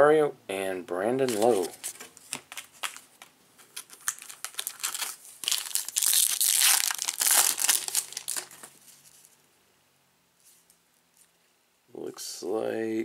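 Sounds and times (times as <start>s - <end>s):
foil wrapper crinkling: 1.2s - 9.4s.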